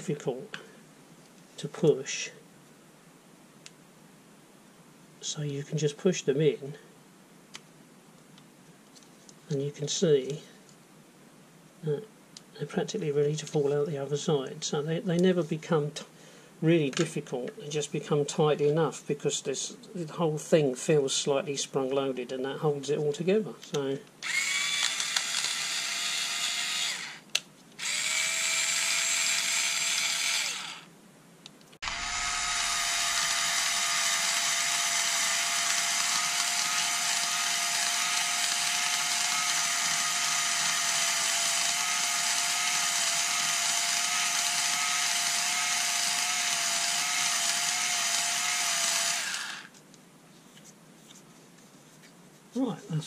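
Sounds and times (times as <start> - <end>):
cordless screwdriver whirring: 24.2 - 30.9, 31.8 - 49.7.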